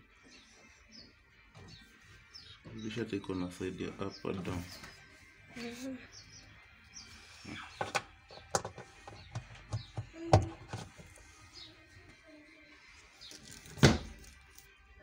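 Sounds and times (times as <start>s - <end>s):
plastic filter clicks and knocks: 7.8s - 11.1s.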